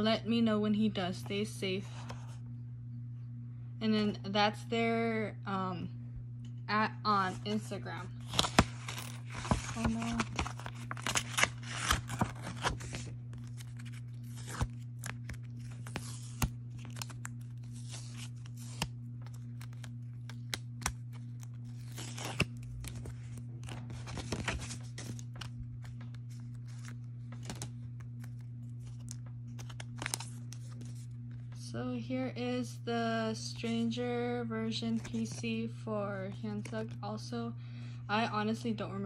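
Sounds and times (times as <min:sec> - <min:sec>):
low hum: 0:00.0 - 0:39.0
paper envelope tearing: 0:08.2 - 0:31.1
plastic wrap crinkling: 0:08.2 - 0:31.6.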